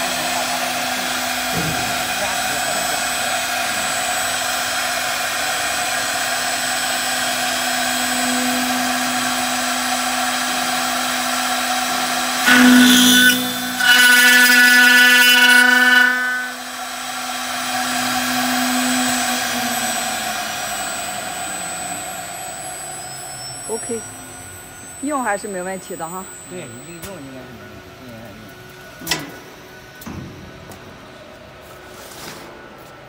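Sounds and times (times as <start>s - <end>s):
router spindle whine: 0.0s - 31.9s
metal cutting screech: 6.8s - 27.7s.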